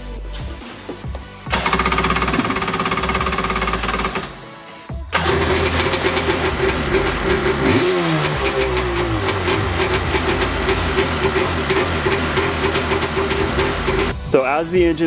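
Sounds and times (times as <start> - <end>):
jet ski engine running: 1.5 - 4.3, 5.2 - 14.1.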